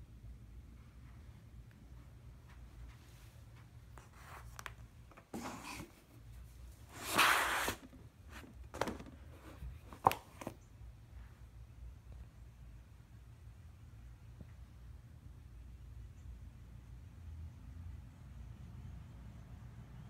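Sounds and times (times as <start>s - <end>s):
hands rubbing and sliding: 2.9s - 7.9s
scrape: 4.0s - 4.6s, 5.3s - 8.4s.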